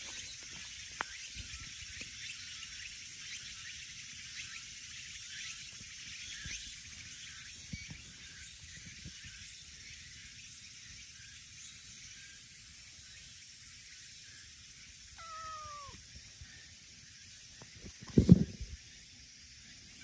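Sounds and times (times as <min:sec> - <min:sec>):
cat meowing: 0:15.2 - 0:16.0.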